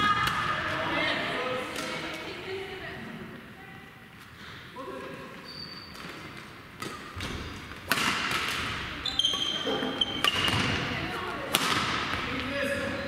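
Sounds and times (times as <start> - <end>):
sneakers squeaking on court floor: 5.3 - 13.0
racket striking shuttlecock: 6.8 - 8.8, 10.2 - 10.9, 11.5 - 12.3.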